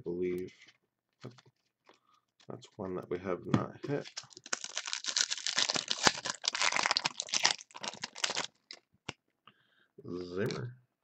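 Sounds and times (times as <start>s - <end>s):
foil wrapper crinkling and tearing: 4.0s - 8.8s.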